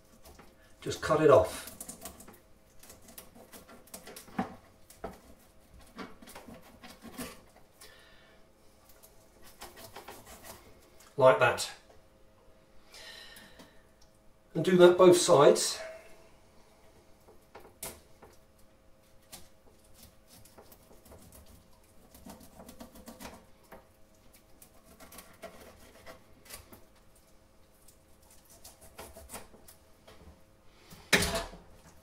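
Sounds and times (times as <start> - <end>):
knife scraping fish on board: 9.4 - 10.6, 24.6 - 26.7, 28.3 - 29.6.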